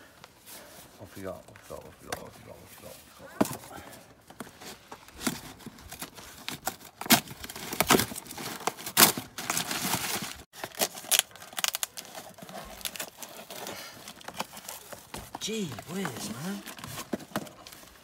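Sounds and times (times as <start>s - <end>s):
cardboard box tearing: 5.2s - 18.0s
paper packing crumpling: 5.2s - 18.0s.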